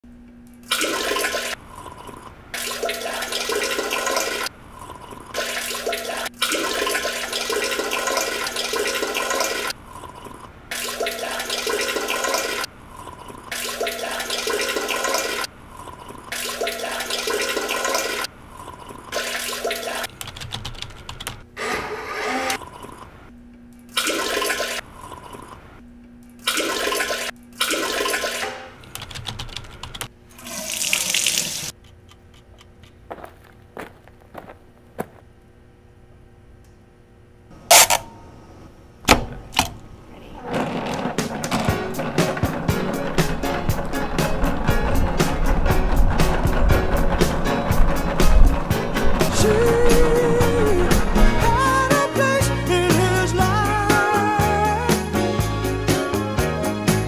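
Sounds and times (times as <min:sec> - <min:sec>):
toilet flushing water rushing: 0:00.7 - 0:20.1, 0:21.6 - 0:23.2, 0:24.0 - 0:25.6, 0:26.4 - 0:28.8, 0:30.3 - 0:31.7, 0:40.5 - 0:52.3
steady hum: 0:09.7 - 0:11.7.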